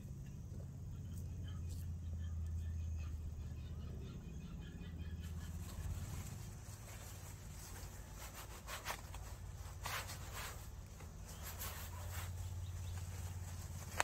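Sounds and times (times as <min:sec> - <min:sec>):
low steady hum: 0:00.0 - 0:14.0
plastic film rustling: 0:05.5 - 0:14.0.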